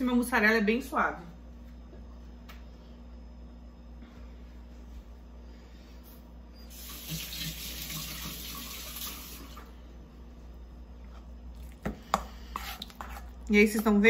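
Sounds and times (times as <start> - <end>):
water running: 6.7 - 9.7.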